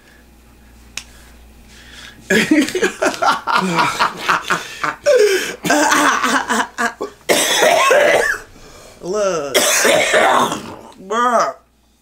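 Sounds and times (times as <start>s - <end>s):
man and woman laughing: 2.3s - 7.2s
people coughing: 2.3s - 8.5s, 9.5s - 10.9s.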